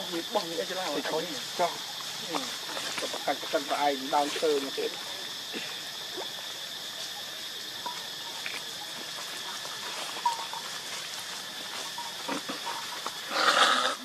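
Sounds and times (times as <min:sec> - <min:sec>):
steady outdoor hiss: 0:00.0 - 0:14.0
rustling dry leaves: 0:08.4 - 0:14.0.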